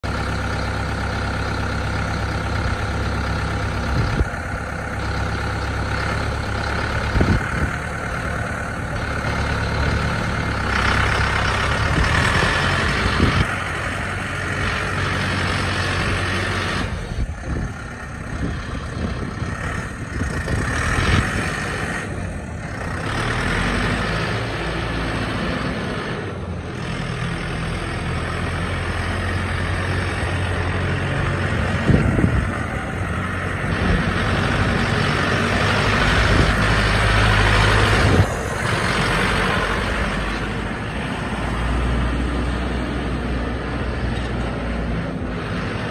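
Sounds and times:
tractor diesel engine running: 0.0 - 45.9.

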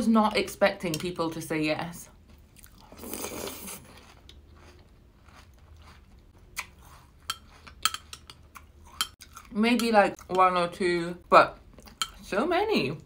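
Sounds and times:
chewing cereal: 2.3 - 10.5.

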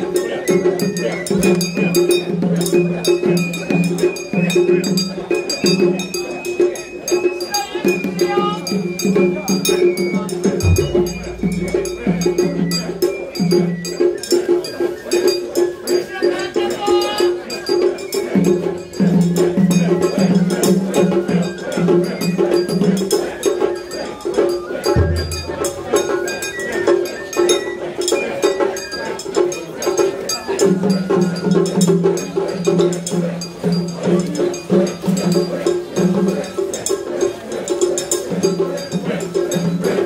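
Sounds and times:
clanging metal percussion: 0.0 - 40.0
festival drums: 0.0 - 40.0
held pitched melody: 8.8 - 15.0
high melodic notes: 10.5 - 13.5
deep low boom: 10.6 - 12.8
metallic and wooden strikes: 10.6 - 13.1.

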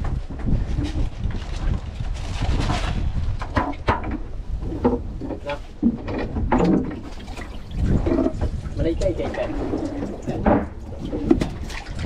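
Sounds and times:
boat engine rumble: 0.0 - 12.0
wind on microphone: 0.0 - 12.0
water splashing: 6.5 - 12.0.

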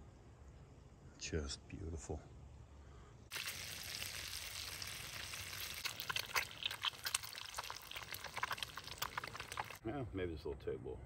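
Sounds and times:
crackles and pops: 3.3 - 9.8
food sizzling in a pan: 3.3 - 9.8.

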